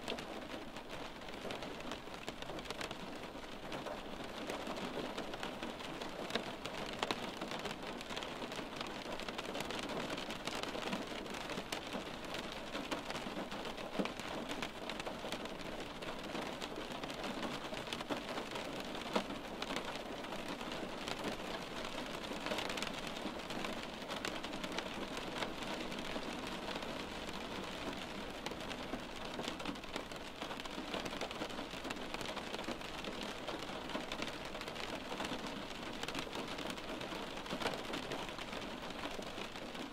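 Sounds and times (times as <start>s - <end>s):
rain on window glass: 0.0s - 39.9s.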